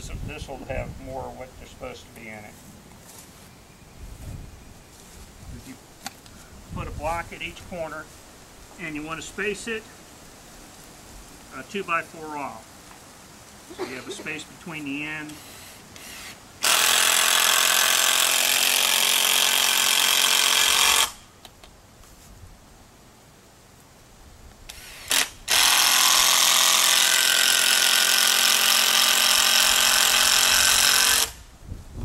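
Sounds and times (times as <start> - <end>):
cordless drill driving screws: 15.3 - 21.2, 24.7 - 31.4.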